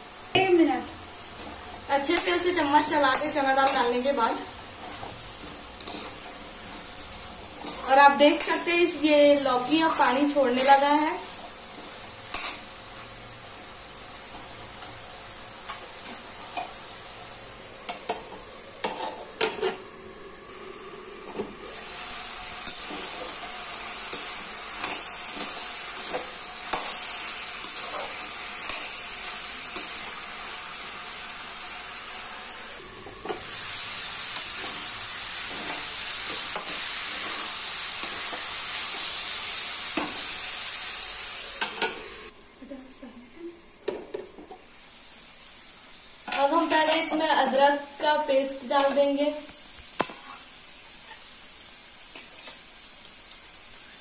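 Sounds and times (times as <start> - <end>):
vegetables sizzling in a pan: 0.0 - 54.0
metal spoon scraping a pan: 2.0 - 11.2, 12.3 - 12.6, 18.0 - 19.9, 21.3 - 31.2.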